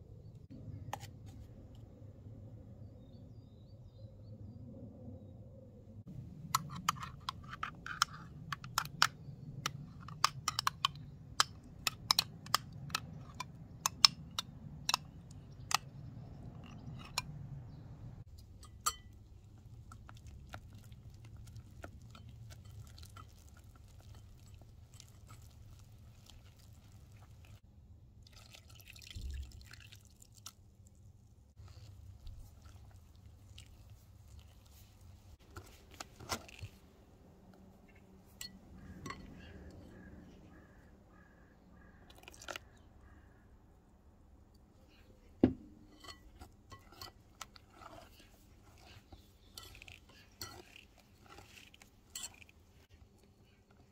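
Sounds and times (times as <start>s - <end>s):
wet stirring: 6.4s - 17.6s, 18.2s - 27.6s, 28.2s - 37.0s, 44.6s - 53.9s.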